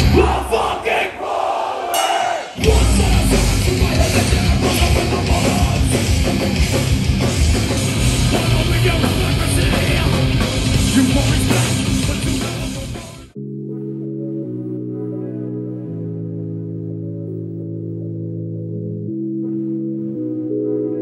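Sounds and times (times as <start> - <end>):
heavy metal music: 0.0 - 1.2, 1.9 - 21.0
fast dense drumming: 2.6 - 13.1.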